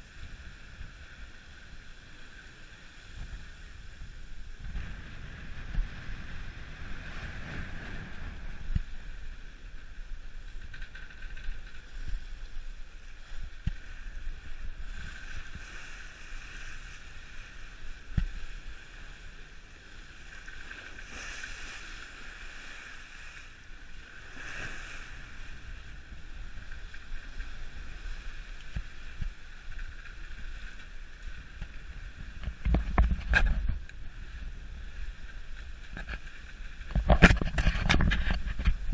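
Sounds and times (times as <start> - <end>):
sea rushing along hull: 0.0 - 38.9
wind buffeting microphone: 3.0 - 18.9, 24.2 - 38.9.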